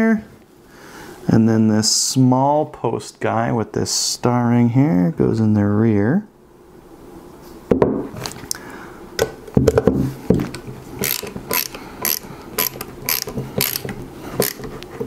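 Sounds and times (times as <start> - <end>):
ratchet screwdriver clicks: 11.0 - 14.7.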